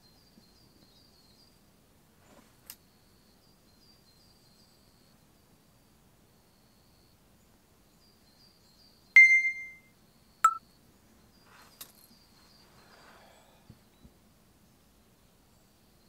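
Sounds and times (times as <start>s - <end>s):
faint high chirping: 7.9s - 14.1s
sharp pitched dings: 9.2s - 9.8s.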